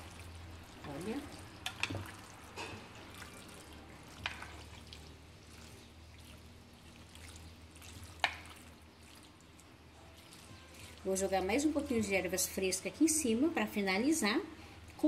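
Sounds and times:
wet sounds of stirred pasta: 0:00.0 - 0:13.5
spoon clicking against dish: 0:01.6 - 0:02.0.

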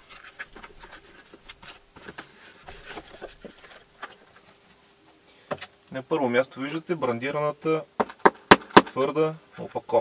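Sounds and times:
packaging rustling and tapping: 0:00.0 - 0:04.5.

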